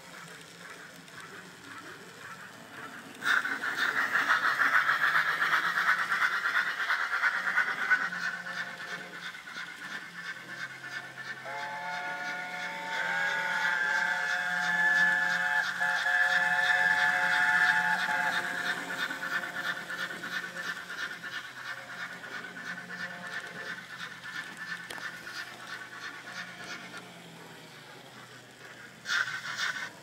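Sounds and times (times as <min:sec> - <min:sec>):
steam engine chuffing: 0:00.0 - 0:30.0
steam hiss: 0:00.0 - 0:30.0.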